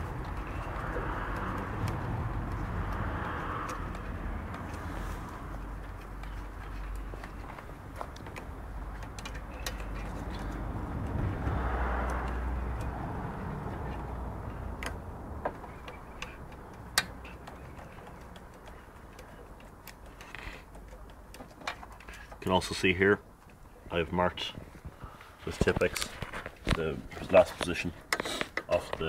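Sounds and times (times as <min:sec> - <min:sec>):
rubbing and rustling: 0:00.0 - 0:11.4
sharp metal clicks and knocks: 0:00.0 - 0:22.5.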